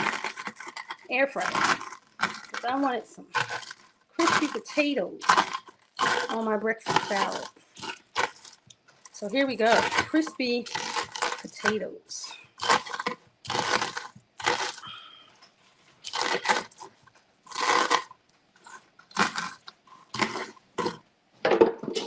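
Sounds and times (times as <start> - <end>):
knife chopping crispy potatoes: 0.0 - 8.6, 9.2 - 12.0, 12.6 - 14.8.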